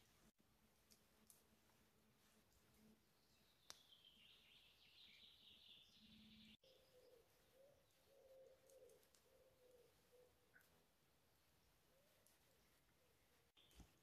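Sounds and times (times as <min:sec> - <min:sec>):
faint high bird trill: 0:03.3 - 0:10.7.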